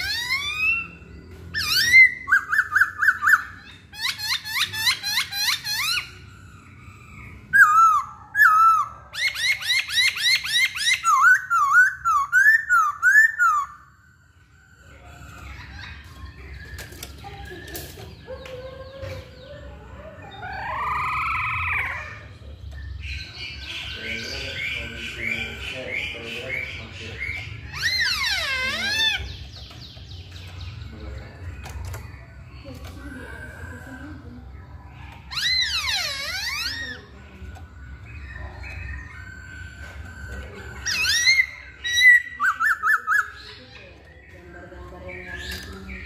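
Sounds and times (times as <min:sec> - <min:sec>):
bird calling with whistled notes: 0:00.0 - 0:18.3, 0:35.2 - 0:43.7.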